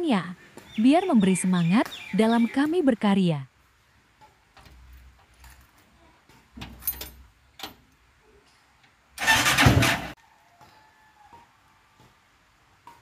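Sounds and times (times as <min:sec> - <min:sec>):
keys jingling: 0:06.7 - 0:07.2
engine cranking: 0:09.2 - 0:10.2.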